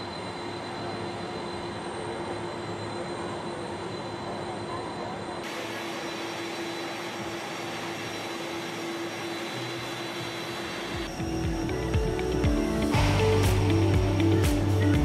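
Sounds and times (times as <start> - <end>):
jet engines running: 0.0 - 15.0.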